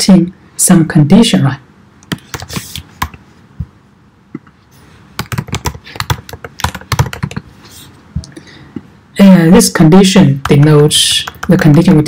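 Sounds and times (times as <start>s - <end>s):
computer keyboard typing: 2.0s - 3.2s, 5.2s - 7.4s, 10.4s - 12.0s.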